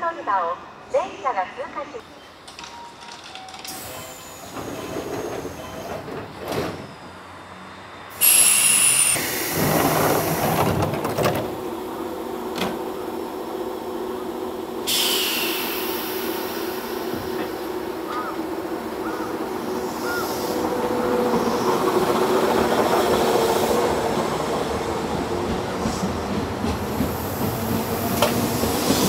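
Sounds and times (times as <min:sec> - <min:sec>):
steady train equipment hum: 0:00.0 - 0:29.0
loud air blast: 0:08.1 - 0:10.4, 0:14.9 - 0:16.8
air hiss of closing doors: 0:08.1 - 0:11.5, 0:14.9 - 0:17.7.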